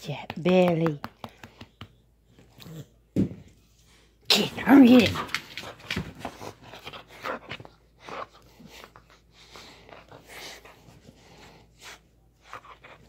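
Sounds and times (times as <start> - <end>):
dog sniffing and breathing: 5.6 - 13.0.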